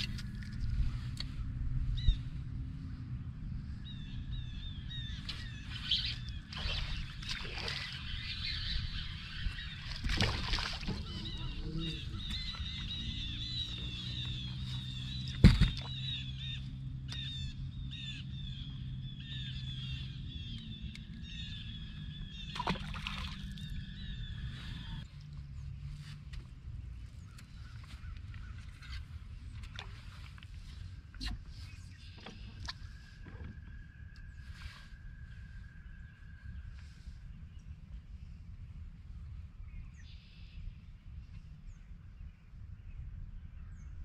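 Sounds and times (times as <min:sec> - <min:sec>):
birds chirping: 0:00.0 - 0:38.4.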